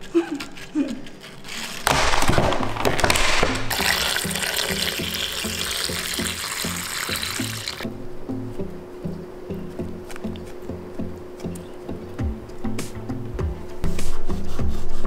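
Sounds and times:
crisp crackling: 0.0 - 7.8
tap water pouring into bowl: 3.7 - 7.8.

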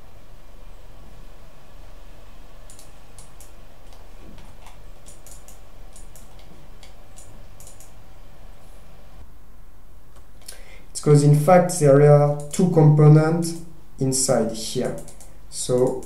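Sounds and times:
low background hum: 0.0 - 16.0
computer mouse clicking: 2.7 - 8.0, 14.8 - 16.0.

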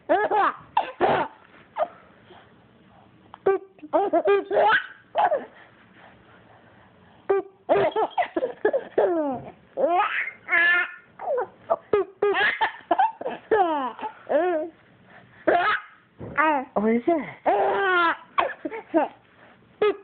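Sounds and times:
baby laughing: 0.1 - 2.0, 3.5 - 5.6, 7.3 - 14.8, 15.5 - 16.0, 17.5 - 19.2, 19.8 - 20.0.

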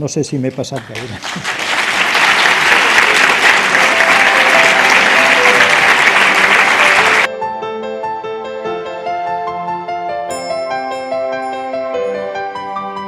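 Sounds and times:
audience applauding: 0.7 - 7.3
gentle music: 3.1 - 13.0.

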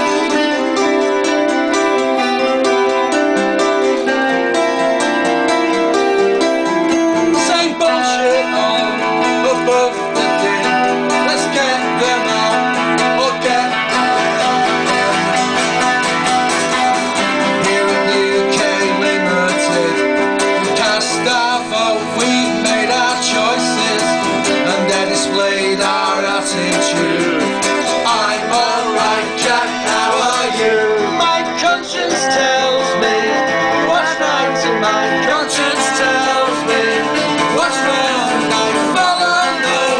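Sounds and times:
acoustic guitars strumming: 0.0 - 39.9
man singing into a microphone: 7.3 - 14.6, 17.2 - 39.9.

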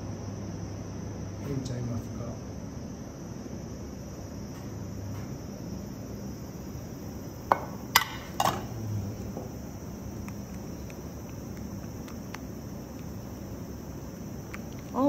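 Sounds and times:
metal bowl and spatula clinking: 8.0 - 8.7.

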